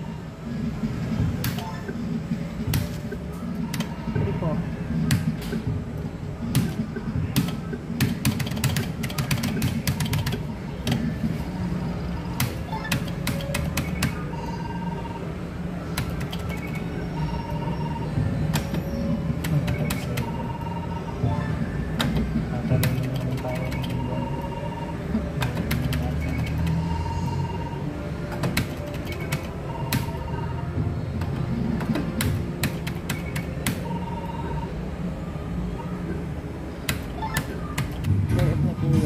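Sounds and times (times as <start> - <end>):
low hum of gaming hall: 0.0 - 39.0
short electronic beeps: 16.4 - 18.2, 23.4 - 25.0, 26.0 - 27.9.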